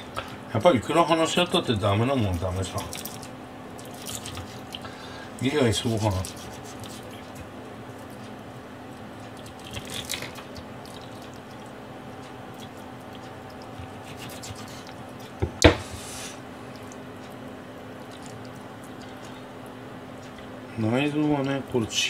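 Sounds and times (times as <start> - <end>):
wet squishing of flesh: 2.6 - 4.9, 9.0 - 11.8, 17.8 - 19.5
knife cutting through fish: 5.8 - 7.1, 13.8 - 14.9.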